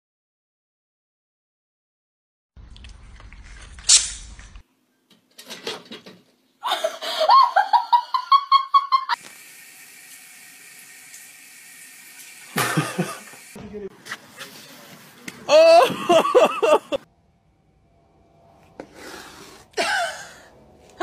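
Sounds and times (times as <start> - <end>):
rapid pitched laughter: 6.6 - 9.2, 15.8 - 17.0
tap running into a sink: 12.2 - 13.5.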